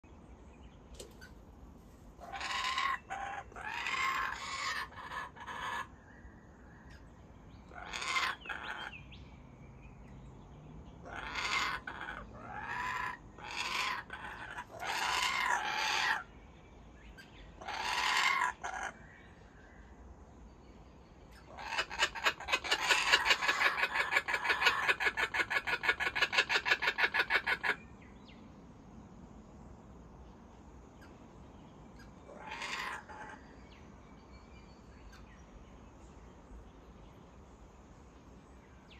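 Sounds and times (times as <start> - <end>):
kookaburra laughing call: 7.8 - 8.9, 11.1 - 16.2, 21.5 - 27.8, 32.4 - 33.4.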